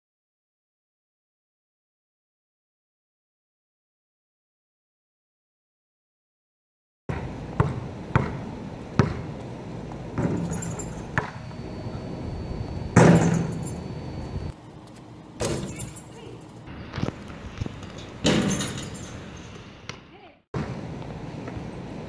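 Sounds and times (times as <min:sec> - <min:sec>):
basketball bouncing on asphalt: 0:07.1 - 0:11.4.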